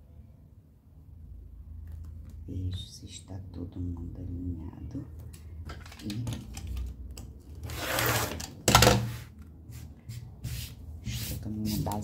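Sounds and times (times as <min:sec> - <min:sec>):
fabric and tools clicking and rustling: 0:05.3 - 0:09.1
rubbing on cutting mat: 0:09.1 - 0:12.0.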